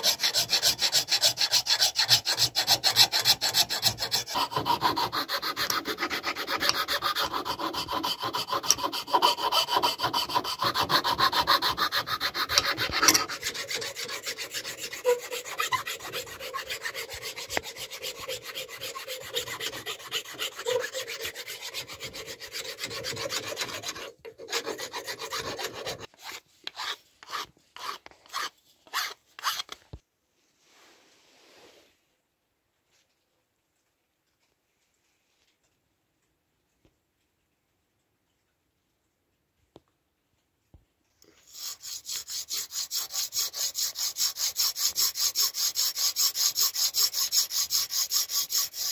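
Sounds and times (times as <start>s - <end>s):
file rasping on wood: 0.0s - 29.7s, 41.4s - 48.9s.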